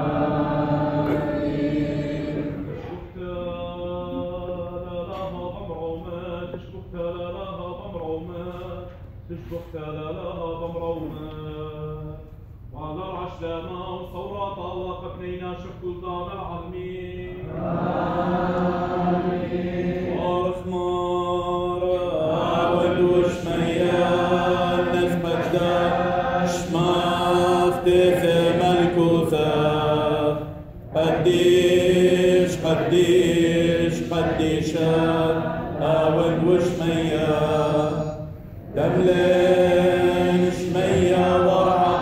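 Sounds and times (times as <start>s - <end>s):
voices chanting in unison: 0.0s - 3.0s, 17.4s - 42.0s.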